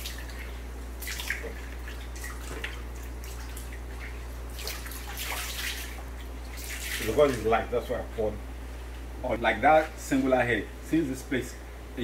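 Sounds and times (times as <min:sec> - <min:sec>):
water dripping and trickling: 0:00.0 - 0:07.4
small water splashes: 0:00.0 - 0:07.6
steady low hum: 0:00.0 - 0:12.0.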